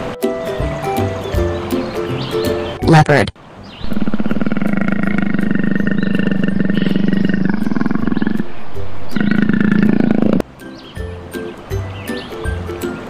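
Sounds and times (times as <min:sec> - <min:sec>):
leopard roaring: 0:03.9 - 0:08.5, 0:09.1 - 0:10.4.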